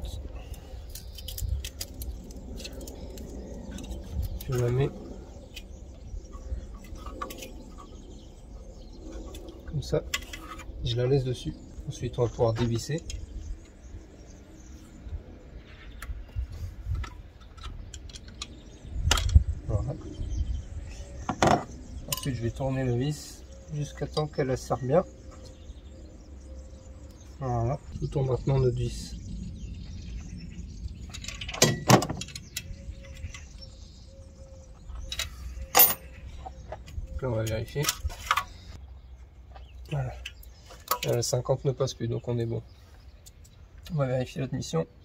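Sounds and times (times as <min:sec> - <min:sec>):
metal tools clinking: 0:34.9 - 0:36.5.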